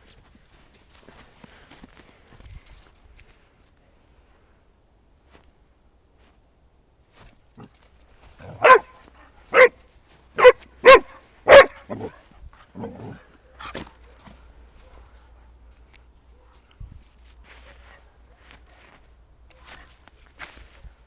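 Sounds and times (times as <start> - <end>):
dog barking: 8.4 - 9.8, 10.4 - 12.2, 12.8 - 15.6, 16.3 - 16.6.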